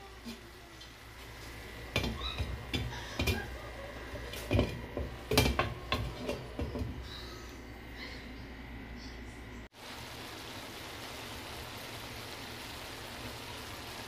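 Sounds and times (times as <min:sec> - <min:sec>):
glass lid knocking on frying pan: 0:04.4 - 0:06.9.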